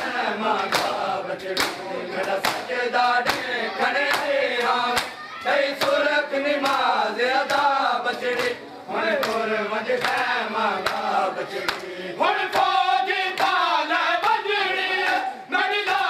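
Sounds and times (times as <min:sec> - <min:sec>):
hand slaps on chests: 0:00.0 - 0:05.2, 0:06.6 - 0:08.6, 0:09.2 - 0:11.1, 0:11.7 - 0:11.9, 0:13.3 - 0:13.6
men chanting in unison: 0:00.0 - 0:16.0.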